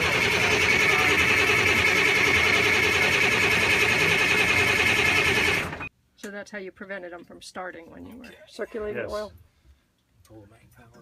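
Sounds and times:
starter motor cranking diesel engine: 0.0s - 5.9s.

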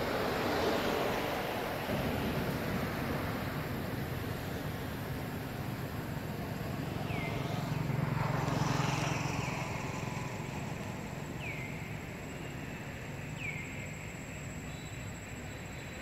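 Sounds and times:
vehicle passing: 0.2s - 14.1s.

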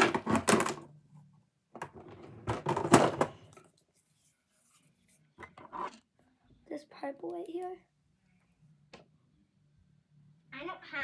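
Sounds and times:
rustling and clattering: 1.8s - 3.8s.

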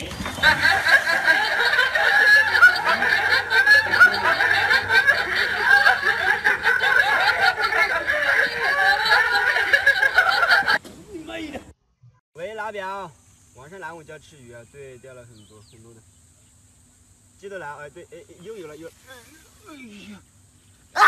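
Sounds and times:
laughter: 0.1s - 10.8s.

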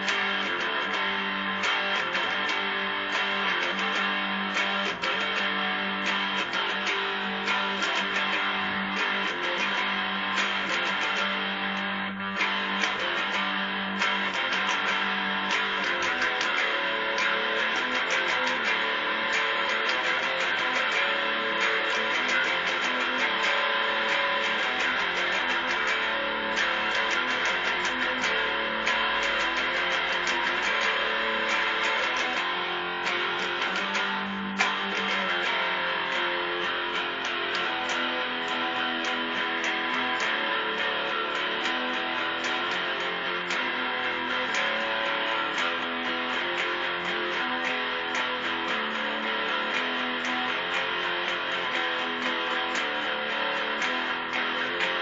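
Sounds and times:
guitar strumming chords: 0.0s - 55.0s.

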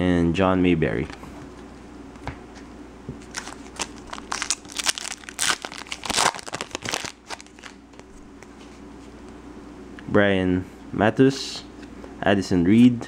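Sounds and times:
wrapper crinkling and tearing: 3.2s - 8.1s.

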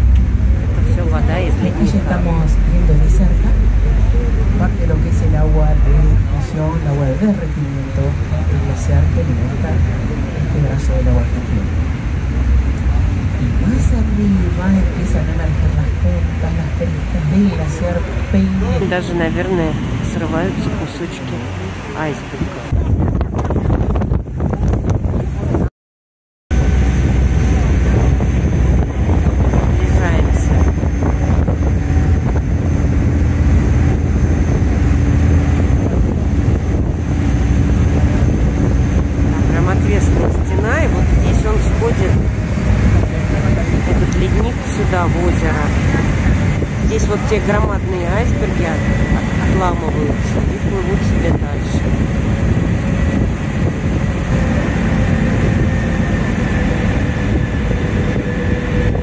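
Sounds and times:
boat engine droning: 0.0s - 25.7s, 26.5s - 59.0s
wind rushing on microphone: 22.0s - 25.7s, 26.5s - 59.0s.

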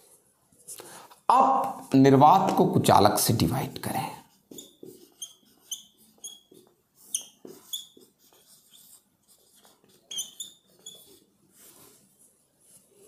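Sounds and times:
marker squeaking on board: 4.2s - 11.4s
faint writing scrapes and taps: 4.3s - 13.0s.

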